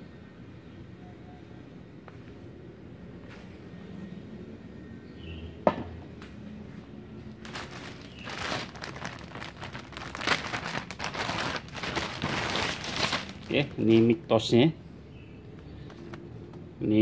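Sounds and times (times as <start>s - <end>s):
plastic bag crinkling: 7.3s - 14.3s.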